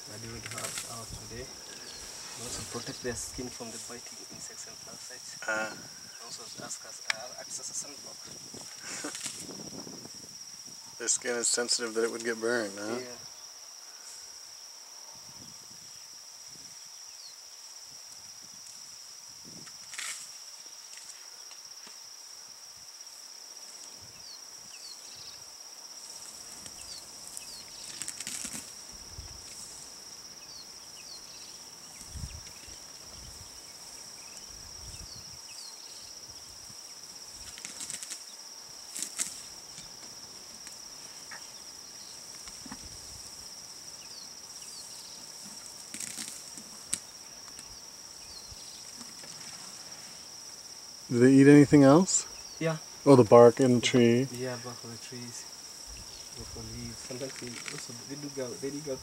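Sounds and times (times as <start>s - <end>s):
crackling rustles: 0.0s - 5.4s, 6.3s - 10.2s, 19.6s - 22.0s, 26.0s - 30.2s, 37.0s - 50.5s, 55.0s - 59.0s
insects buzzing: 0.0s - 59.0s.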